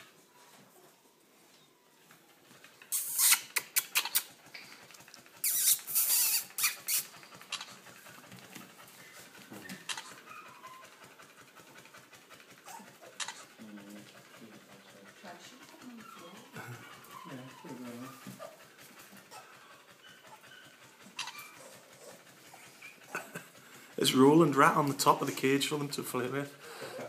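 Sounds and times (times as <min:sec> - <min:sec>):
puppies scrabbling: 0:01.8 - 0:27.0
faint puppy squeaks: 0:02.9 - 0:04.8, 0:05.4 - 0:07.9, 0:09.0 - 0:11.3, 0:12.6 - 0:23.1.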